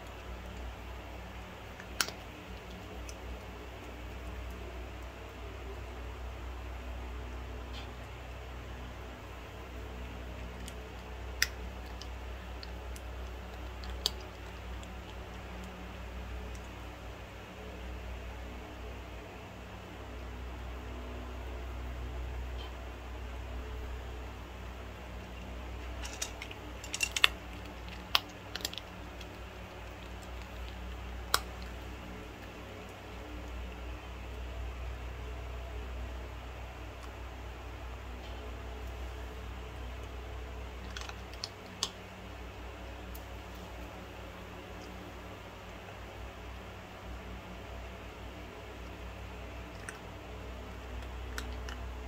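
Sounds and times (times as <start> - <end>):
steady low background hum: 0.0 - 52.0
cat crunching dry kibble: 10.4 - 16.7, 25.3 - 33.9, 40.8 - 42.0, 50.9 - 52.0.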